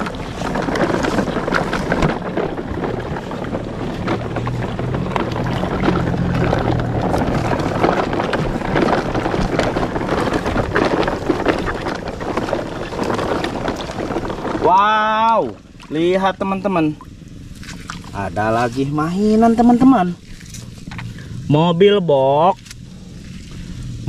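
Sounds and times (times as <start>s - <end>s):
toy truck wheels sloshing in water: 0.0s - 21.4s.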